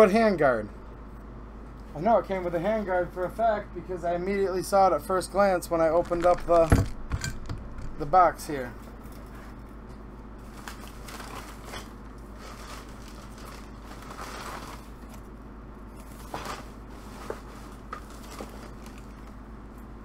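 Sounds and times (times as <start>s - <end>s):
steady low hum: 0.0s - 20.0s
rummaging rustles and knocks: 5.9s - 8.2s, 10.5s - 14.9s, 16.1s - 19.1s.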